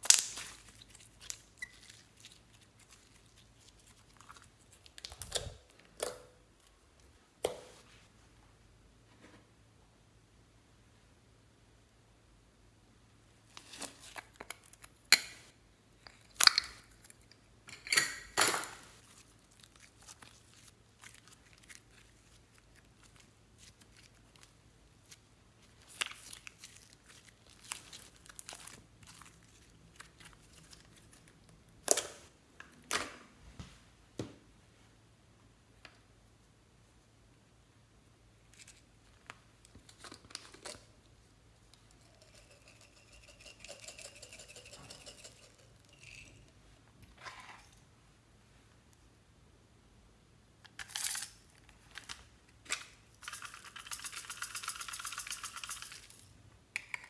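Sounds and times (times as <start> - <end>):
slime crackling and tearing: 0.0 - 5.3.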